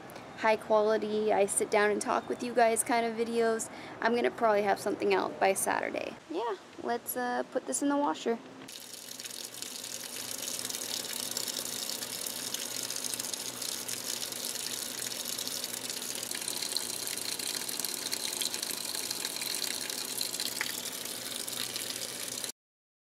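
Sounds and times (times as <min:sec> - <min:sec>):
water pouring into washing machine: 0:08.7 - 0:22.5.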